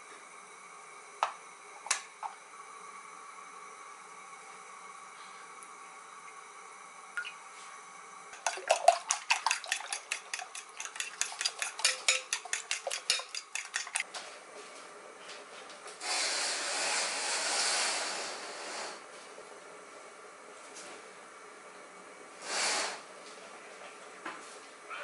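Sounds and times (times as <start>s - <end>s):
fork clicking against glass bowl: 9.4s - 14.0s.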